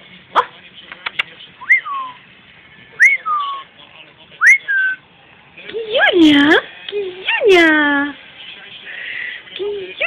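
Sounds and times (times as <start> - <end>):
sharp click: 0.9 - 1.3.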